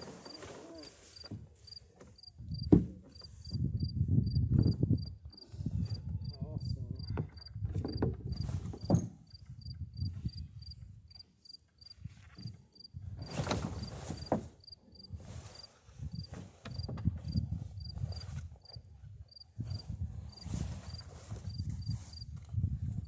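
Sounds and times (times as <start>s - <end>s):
wind rumbling on microphone: 3.3s - 11.1s, 15.1s - 23.0s
rustles and knocks: 13.2s - 14.7s, 15.4s - 17.4s.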